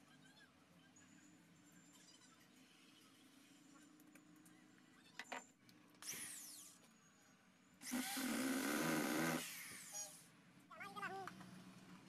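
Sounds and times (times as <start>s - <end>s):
power drill running: 7.8s - 10.1s.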